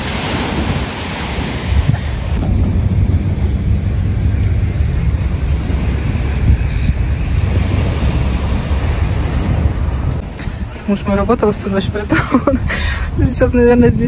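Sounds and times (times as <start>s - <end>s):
waves washing onto sand: 0.0s - 11.0s
wind buffeting microphone: 0.0s - 14.0s.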